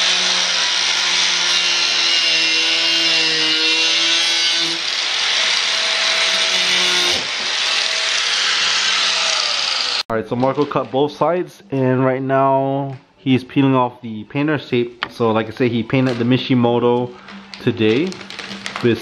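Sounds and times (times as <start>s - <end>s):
angle grinder cutting: 0.0s - 10.1s.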